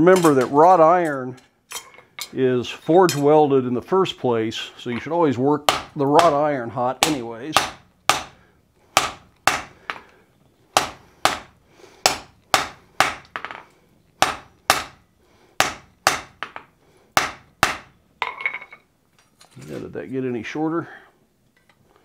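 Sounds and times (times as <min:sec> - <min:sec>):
hammer striking hot iron on anvil: 0:07.0 - 0:08.4, 0:10.8 - 0:11.5, 0:12.1 - 0:13.3, 0:14.2 - 0:15.0, 0:15.6 - 0:16.6, 0:17.2 - 0:17.9.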